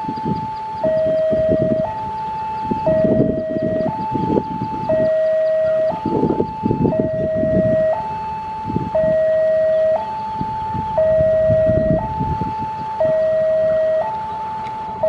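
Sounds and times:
two-tone crossing alarm: 0:00.0 - 0:15.0.

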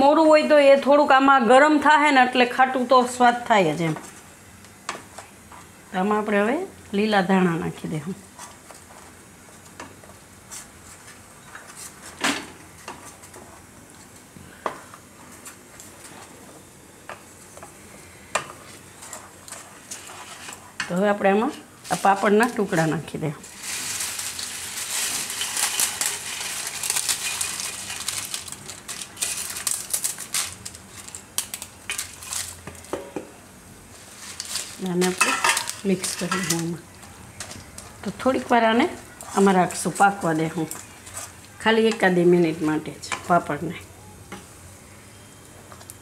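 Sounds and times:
crisp pieces crackling and rustling: 0:21.8 - 0:33.0, 0:33.8 - 0:42.0.

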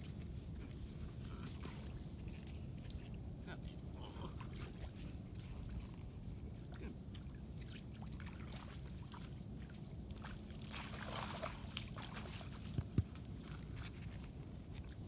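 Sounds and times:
dog splashing through water: 0:06.6 - 0:15.0.

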